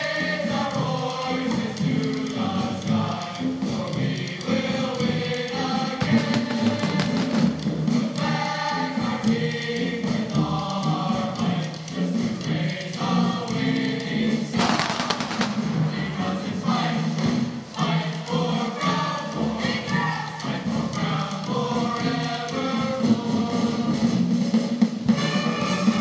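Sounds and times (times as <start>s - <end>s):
choir singing sustained chords: 0.0s - 26.0s
firework crackling: 6.0s - 8.0s, 14.6s - 16.5s
firework bangs: 14.6s - 16.0s.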